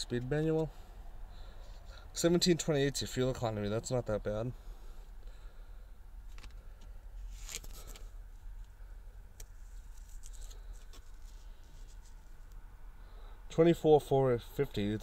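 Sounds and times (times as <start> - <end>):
low steady hum: 0.0 - 15.0
paper sticker rustling: 7.2 - 8.1, 9.4 - 12.6.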